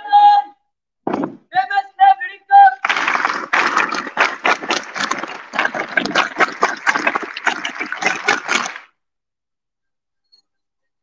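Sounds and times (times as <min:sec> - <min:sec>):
large crowd applauding: 0:02.8 - 0:08.9.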